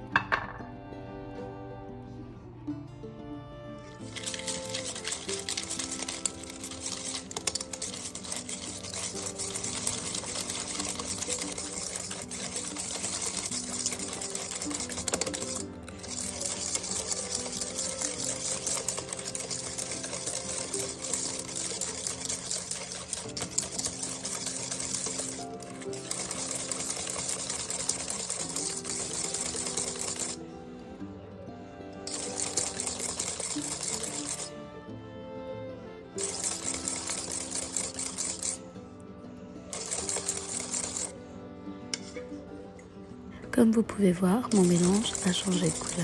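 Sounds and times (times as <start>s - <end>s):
background music: 0.0s - 46.0s
whisk beating in plastic bowl: 4.0s - 30.4s, 32.1s - 34.6s, 36.2s - 38.6s, 39.7s - 41.2s, 43.7s - 46.0s.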